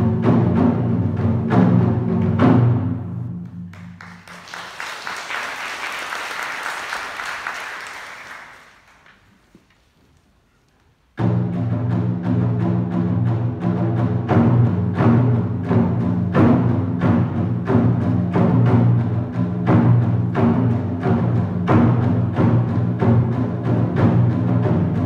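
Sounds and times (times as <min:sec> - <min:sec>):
audience applause: 0:03.7 - 0:09.5.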